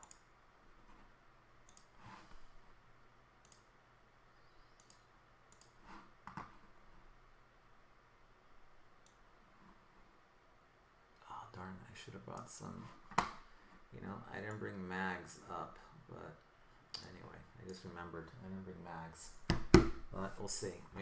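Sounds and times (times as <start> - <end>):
computer mouse clicks: 0.0 - 0.3, 1.6 - 2.0, 3.4 - 3.7, 4.5 - 6.6, 9.0 - 9.2.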